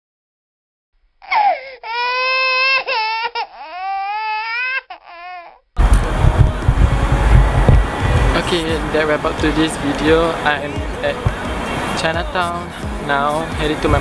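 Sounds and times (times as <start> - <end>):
baby crying: 1.2 - 5.7
street noise: 5.8 - 14.0.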